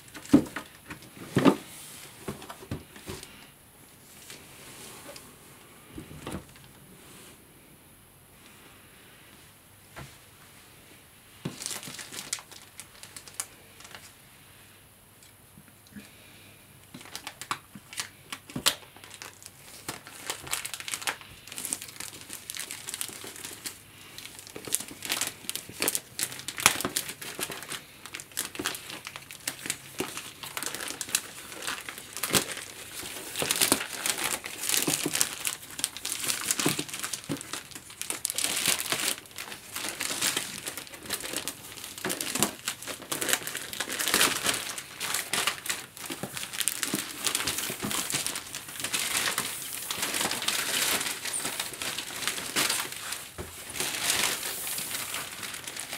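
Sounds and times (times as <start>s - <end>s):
plastic shrink-wrap tearing and crinkling: 11.5s - 14.1s, 16.9s - 55.9s.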